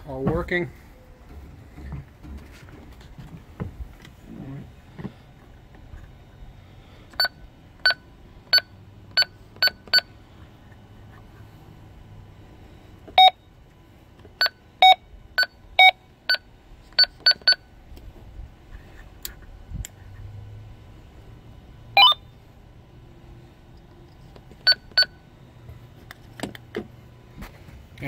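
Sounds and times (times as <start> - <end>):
radio keypad beeps: 13.2 - 13.4.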